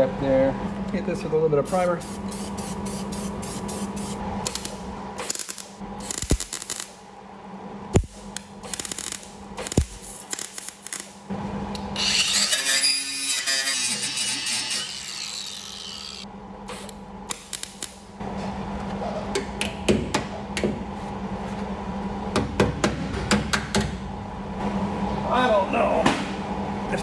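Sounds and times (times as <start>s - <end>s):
welder crackling: 4.4s - 7.0s, 8.0s - 11.2s.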